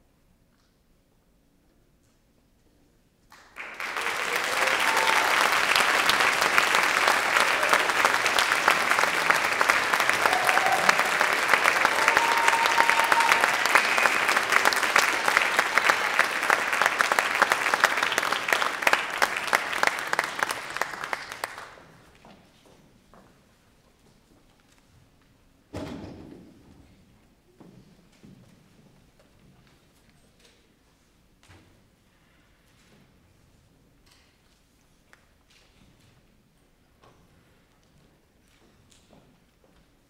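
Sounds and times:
audience applauding: 3.3s - 21.9s.

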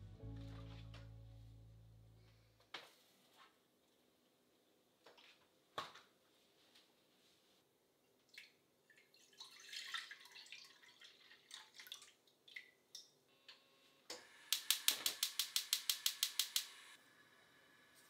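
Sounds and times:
liquid pouring into saucepan: 8.4s - 12.8s
gas igniter clicking: 14.5s - 16.8s.

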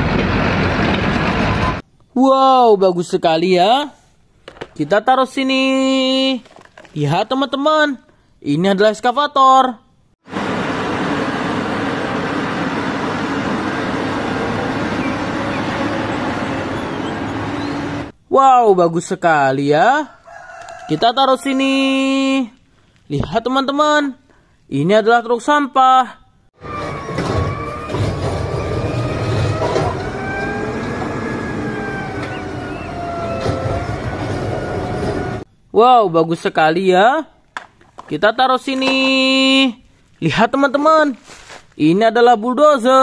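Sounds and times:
excavator engine humming: 10.3s - 18.1s, 26.6s - 35.5s
garbage truck hydraulic whine: 26.6s - 35.5s.

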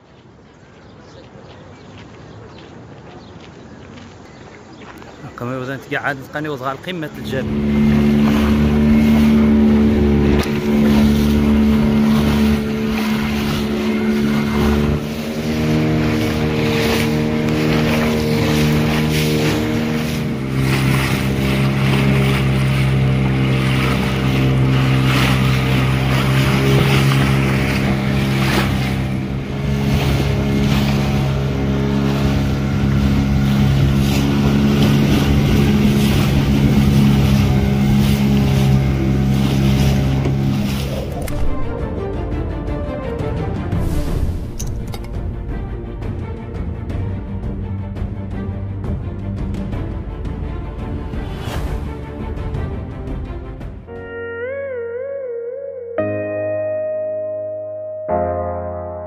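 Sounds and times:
wind and road noise: 0.0s - 42.4s, 43.7s - 53.9s
vehicle engine running: 7.2s - 41.8s.

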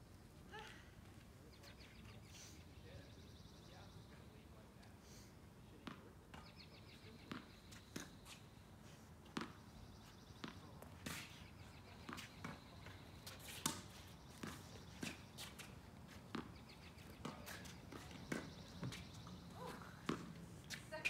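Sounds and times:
tennis ball bouncing on court: 5.8s - 8.4s, 9.3s - 9.6s, 10.3s - 11.3s, 12.0s - 15.7s, 16.3s - 21.0s
tennis ball hit with rackets: 9.3s - 9.6s, 10.3s - 11.4s, 13.4s - 15.7s, 20.0s - 20.8s.

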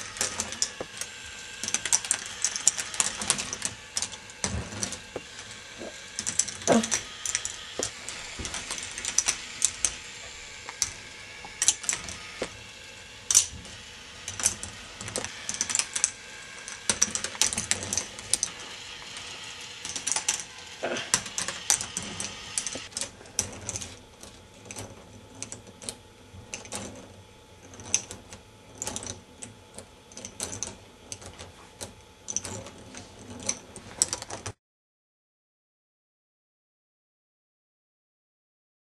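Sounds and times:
plastic balls clattering on track: 0.0s - 24.0s
motor whir: 0.0s - 25.0s.

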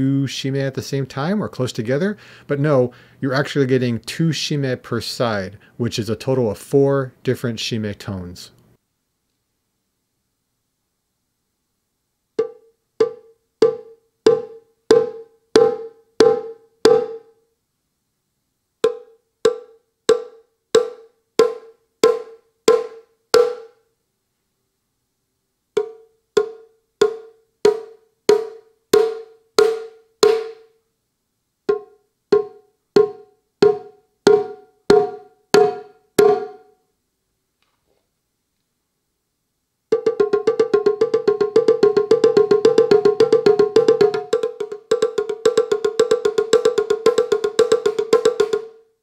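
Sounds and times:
electronic drum strikes: 31.7s - 36.7s, 40.0s - 48.6s.

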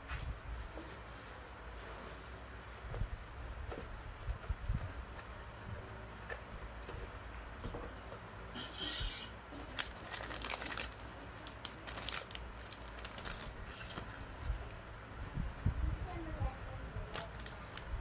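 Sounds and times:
plastic bag rustling: 9.0s - 14.5s, 17.0s - 18.0s.

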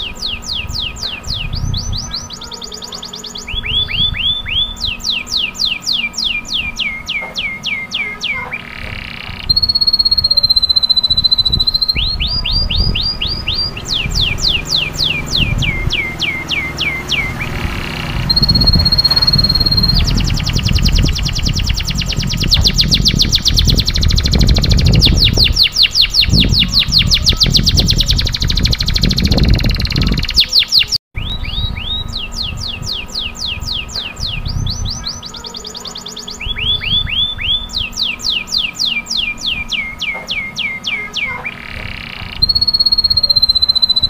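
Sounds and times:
canary singing: 0.0s - 44.0s
low rumble: 8.8s - 30.3s.

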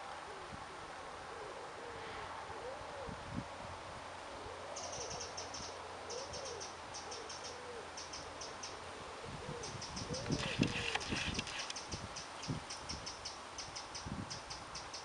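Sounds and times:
bird cooing call: 0.1s - 3.2s, 4.3s - 11.3s.

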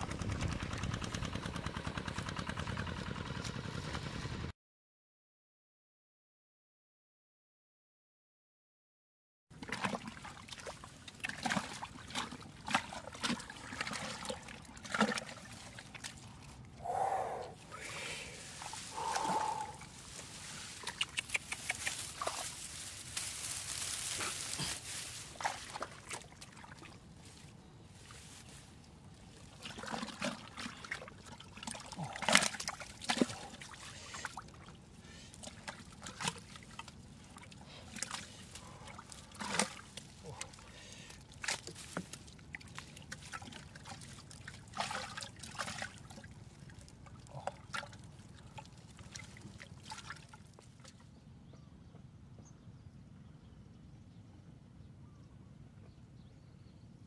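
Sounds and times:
hand squelching in wet mud: 9.6s - 51.0s.

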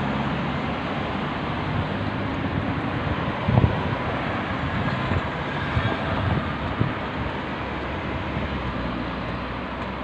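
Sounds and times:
road traffic noise: 0.0s - 10.0s
wind buffeting microphone: 1.7s - 8.8s.

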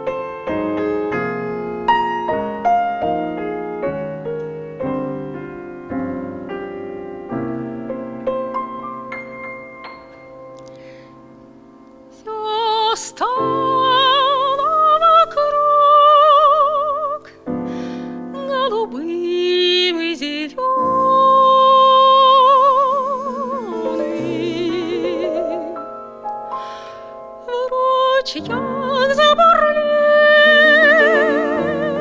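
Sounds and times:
grand piano: 0.0s - 32.0s
woman singing jazz ballad: 12.1s - 26.0s, 27.4s - 32.0s.

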